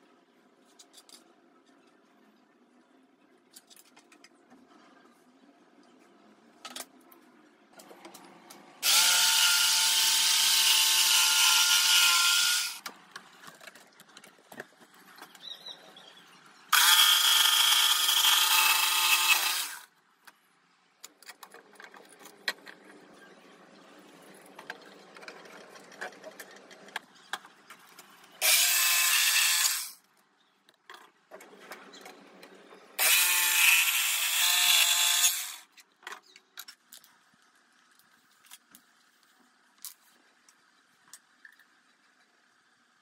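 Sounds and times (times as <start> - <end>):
electric jigsaw cutting wood: 8.8 - 12.8, 16.7 - 19.9, 28.4 - 30.0, 33.0 - 35.7.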